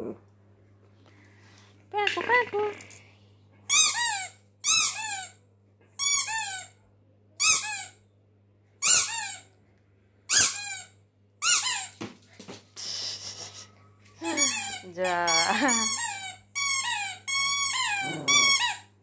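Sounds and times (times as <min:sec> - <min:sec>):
squeaky dog toy squeaking: 0:03.7 - 0:05.4, 0:06.0 - 0:06.8, 0:07.4 - 0:08.0, 0:08.8 - 0:09.5, 0:10.3 - 0:12.0, 0:14.2 - 0:18.9.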